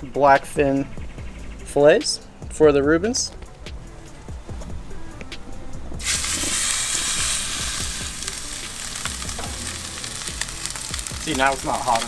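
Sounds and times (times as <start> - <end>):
fish sizzling in hot oil: 6.0 - 12.0.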